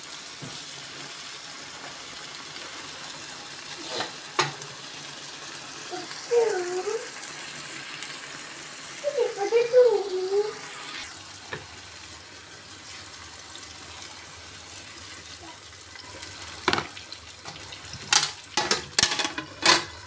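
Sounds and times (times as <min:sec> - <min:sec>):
water splashing into frying pan: 0:03.6 - 0:20.0.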